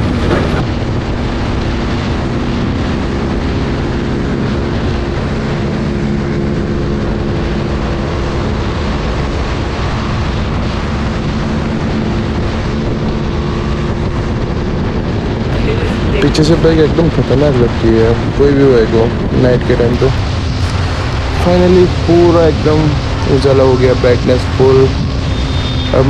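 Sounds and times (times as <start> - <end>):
motorcycle engine cruising: 0.0 - 26.0
road and wind noise: 0.0 - 26.0.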